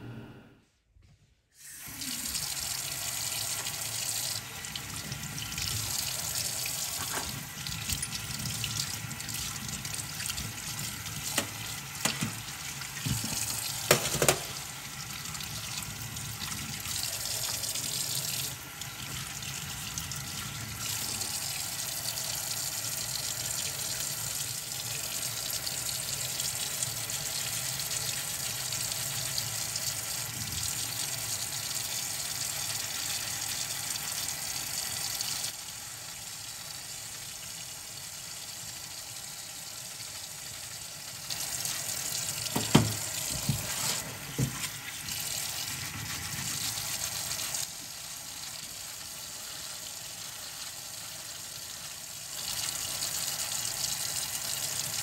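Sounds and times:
running liquid rushing: 41.4s - 48.8s.

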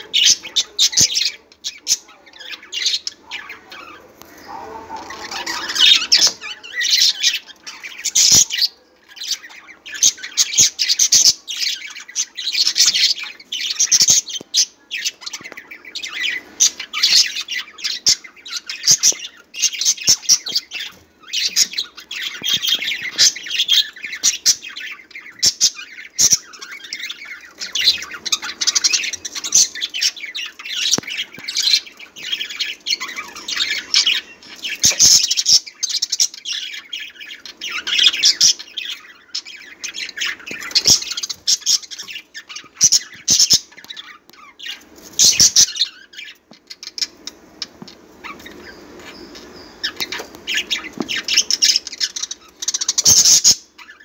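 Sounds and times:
budgerigars chattering: 0.0s - 54.0s.

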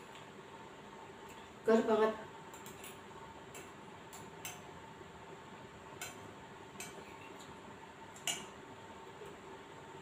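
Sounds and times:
metal spoon clinking against plate: 6.0s - 7.2s, 8.2s - 8.5s.

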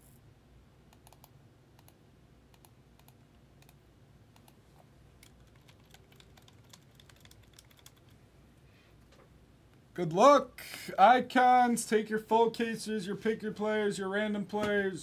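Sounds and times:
keyboard typing: 1.0s - 3.8s, 5.2s - 8.2s.

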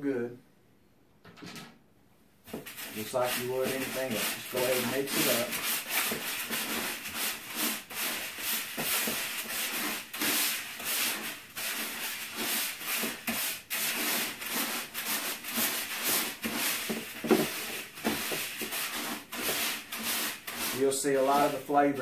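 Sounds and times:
hands mixing pellets in plastic bucket: 2.5s - 22.0s.

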